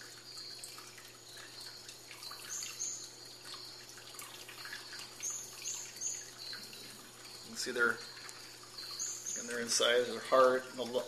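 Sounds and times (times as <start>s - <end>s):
water dripping and trickling: 0.0s - 11.0s
faint high-pitched chirps: 4.6s - 10.8s.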